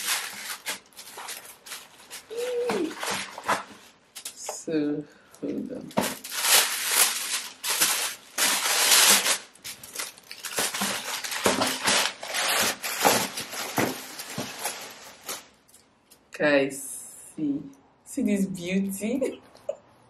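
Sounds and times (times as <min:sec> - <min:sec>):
tissue paper rustling and crinkling: 0:00.0 - 0:04.3, 0:05.8 - 0:15.6.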